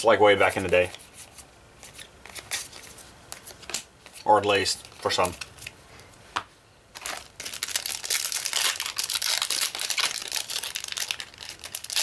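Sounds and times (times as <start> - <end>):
foil wrapper crinkling and tearing: 6.9 - 12.0.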